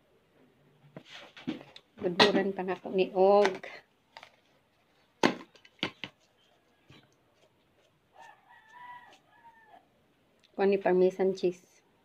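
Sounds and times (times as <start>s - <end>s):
small knocks: 5.2s - 6.2s
rooster crowing: 8.1s - 9.9s.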